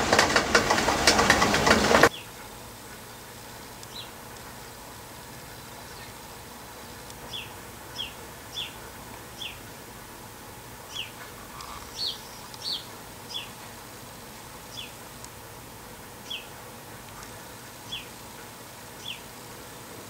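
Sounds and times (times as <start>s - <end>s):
rain hiss: 0.0s - 20.0s
sparrow chirping: 7.3s - 9.6s, 10.9s - 13.6s, 14.7s - 15.0s, 16.2s - 16.5s, 17.9s - 18.1s, 19.0s - 19.2s.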